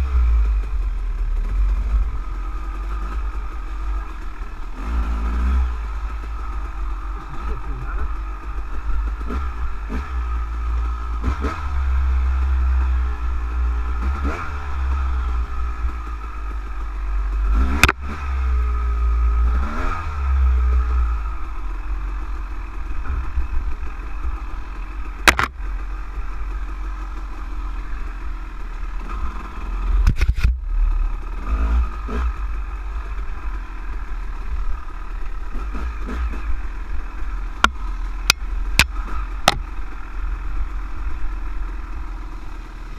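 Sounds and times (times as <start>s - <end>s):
motorcycle engine revving: 0.0s - 42.9s
bike knocking and clattering: 25.3s - 25.6s.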